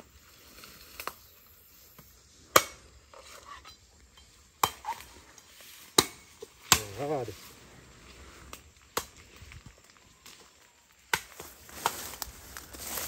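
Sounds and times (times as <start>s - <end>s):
machete chopping coconut husk: 1.9s - 3.4s, 4.5s - 7.2s, 11.0s - 12.1s.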